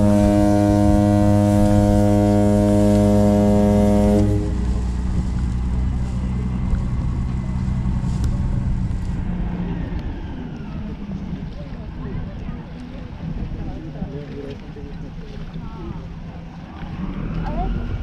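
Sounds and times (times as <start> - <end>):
boat horn blast: 0.0 - 5.2
boat engine drone: 0.0 - 18.0.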